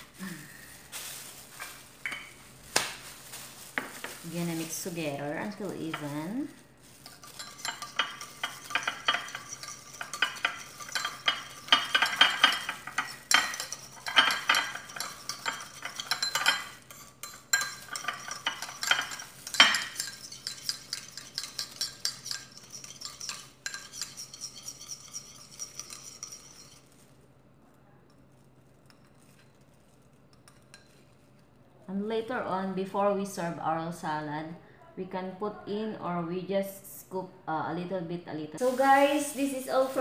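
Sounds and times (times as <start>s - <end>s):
metal spoon clinking in bowl: 7.0s - 26.9s.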